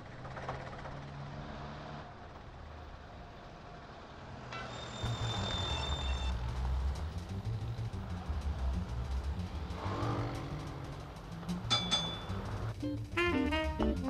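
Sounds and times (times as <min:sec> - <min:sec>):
high ringing tone: 0:04.6 - 0:06.3
bus diesel engine rumbling: 0:04.9 - 0:14.0.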